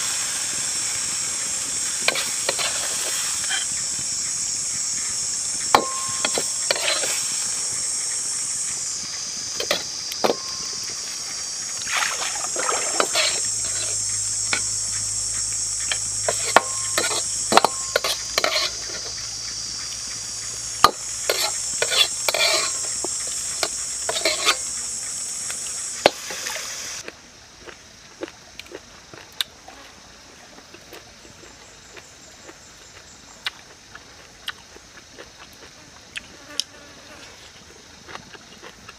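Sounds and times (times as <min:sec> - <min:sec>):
high-pitched drone: 0:00.0 - 0:26.0
metal ladle scraping wok: 0:02.0 - 0:03.8, 0:05.6 - 0:07.5, 0:09.6 - 0:10.8, 0:12.0 - 0:14.9, 0:15.7 - 0:19.2, 0:20.8 - 0:24.7.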